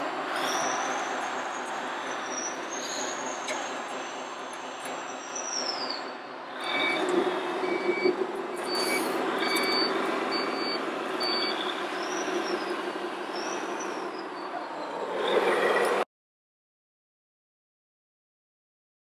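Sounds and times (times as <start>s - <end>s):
electronic diesel engine sound: 0.0s - 16.1s
reversing beeper: 0.4s - 14.8s.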